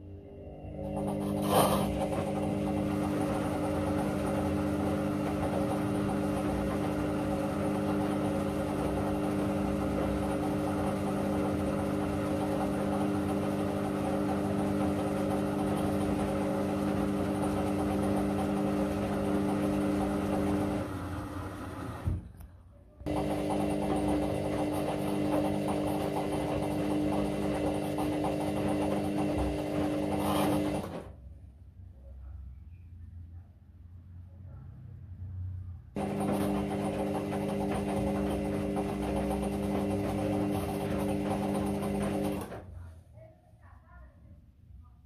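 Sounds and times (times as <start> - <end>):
washing machine motor hum: 0.0 - 22.4, 23.0 - 31.2, 35.9 - 42.9.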